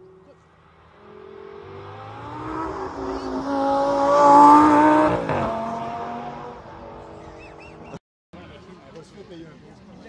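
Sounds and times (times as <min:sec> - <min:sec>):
sports car engine passing at speed: 0:00.2 - 0:08.0.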